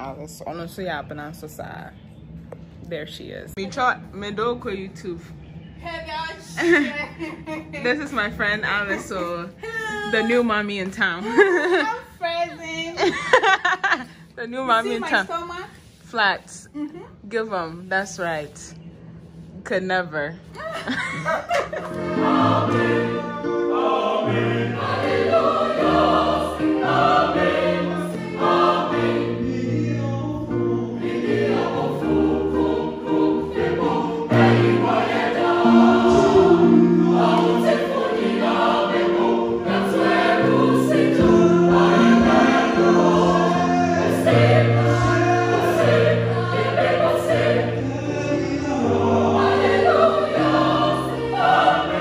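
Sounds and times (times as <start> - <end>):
choir singing gospel: 20.8 - 52.0.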